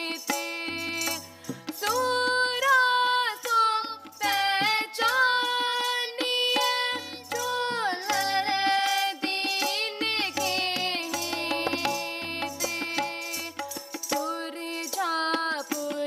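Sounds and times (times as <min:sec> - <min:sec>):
harmonium: 0:00.0 - 0:16.0
tabla strokes: 0:00.0 - 0:16.0
young voices singing: 0:00.7 - 0:12.0.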